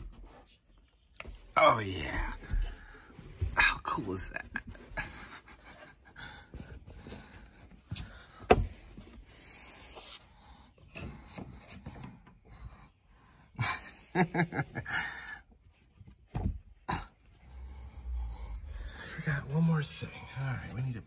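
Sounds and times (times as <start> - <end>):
rubbing and scuffing: 6.6 - 10.4.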